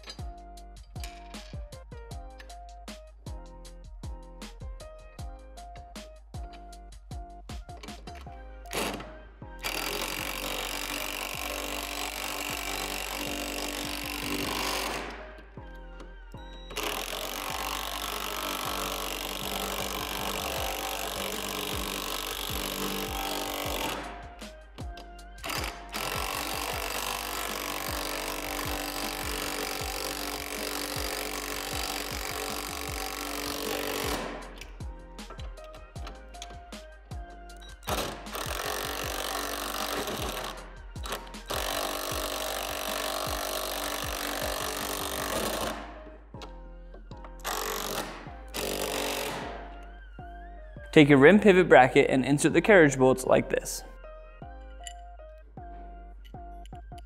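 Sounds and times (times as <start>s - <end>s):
cordless drill driving bolt: 24.8s - 36.6s, 37.7s - 45.8s, 47.4s - 49.6s.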